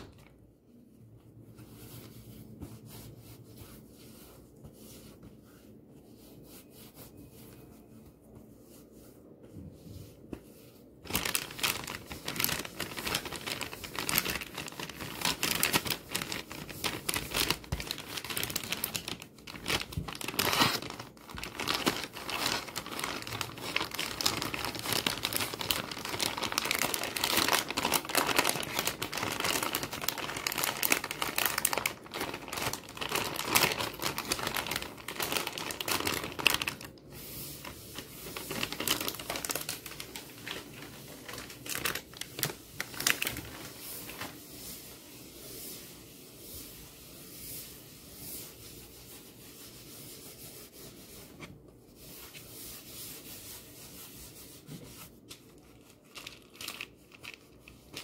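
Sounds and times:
plastic wrapper crinkling: 11.0s - 44.4s, 55.4s - 58.0s.

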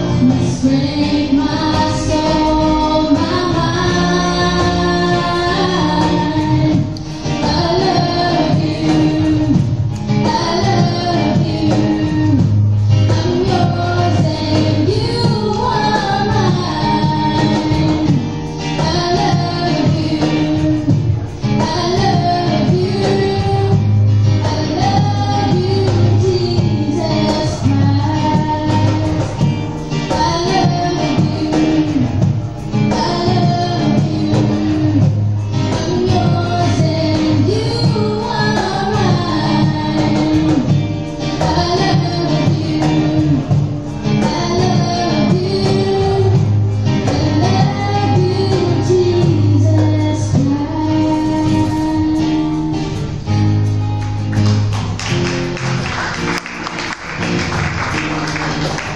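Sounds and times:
women singing: 0.0s - 29.3s, 29.9s - 52.6s
acoustic guitar: 0.0s - 58.9s
women singing in harmony: 0.1s - 9.6s, 13.1s - 18.2s, 35.8s - 40.7s.

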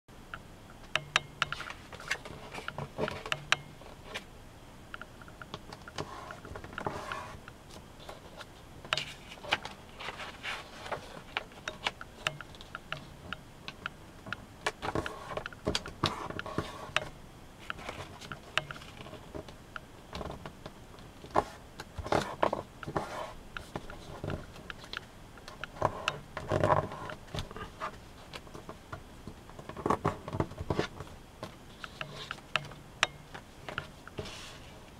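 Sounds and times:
clicks and taps pressing creases: 0.3s - 1.6s, 2.6s - 3.8s, 11.3s - 20.3s, 31.8s - 34.2s
paper rustling and crackling: 5.9s - 12.0s.

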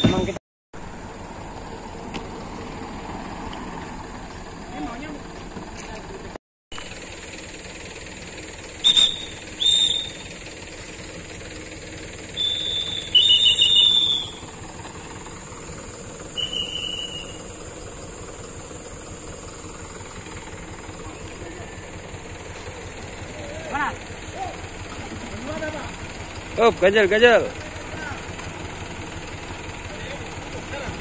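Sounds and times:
whistle blasts: 0.0s - 0.4s, 8.8s - 10.3s, 12.3s - 14.5s, 16.2s - 17.6s
truck engine idling: 0.0s - 31.0s.

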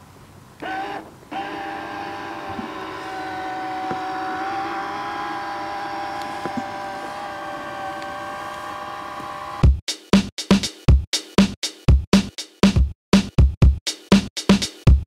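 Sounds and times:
electric motor whine: 0.6s - 9.6s.

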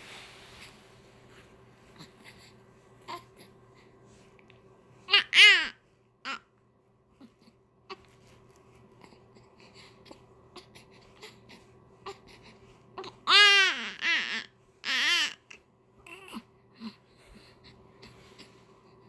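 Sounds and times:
baby crying: 5.1s - 6.4s, 13.0s - 17.0s.

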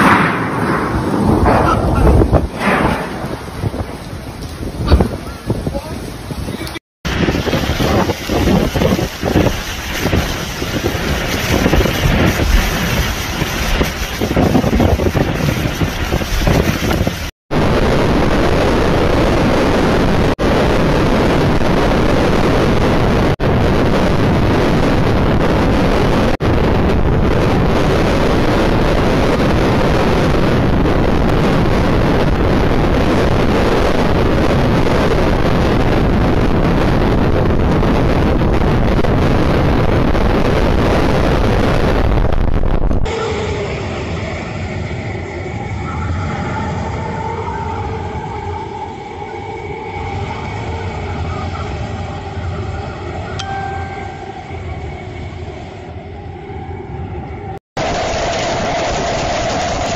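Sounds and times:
wind and rain blasting microphone: 0.0s - 59.9s.

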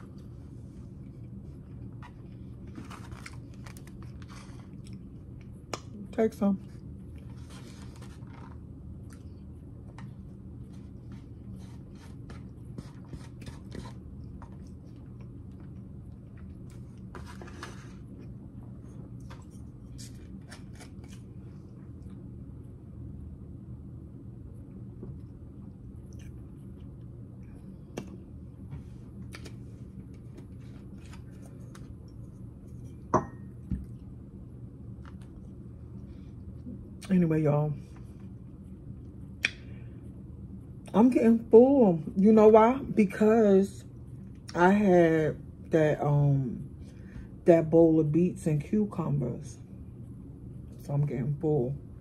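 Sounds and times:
person chewing food: 0.0s - 5.9s, 24.7s - 34.2s
steady low hum: 0.0s - 52.0s.

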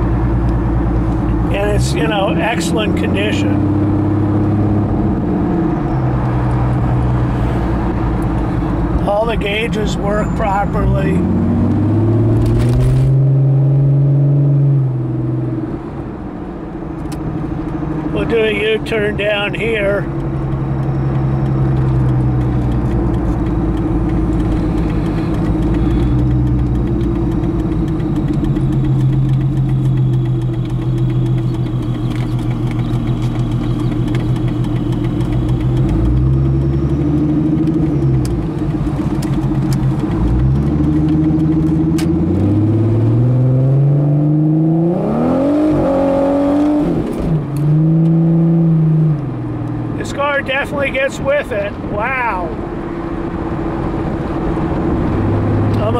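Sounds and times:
car engine revving: 0.0s - 16.0s, 17.1s - 51.6s, 52.2s - 55.9s
car accelerating hard: 10.6s - 15.7s, 20.1s - 50.3s, 52.5s - 55.9s.

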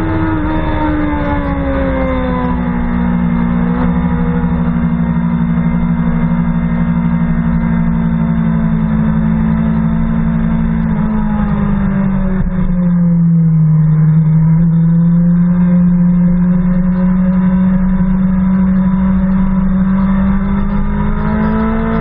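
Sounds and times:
motorcycle engine running: 0.0s - 22.0s.

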